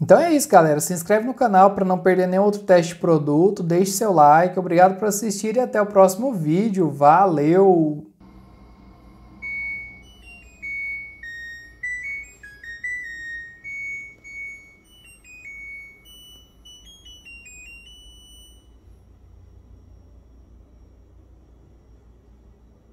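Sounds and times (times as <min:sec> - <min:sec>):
washer beeper melody: 0:08.2 - 0:22.9.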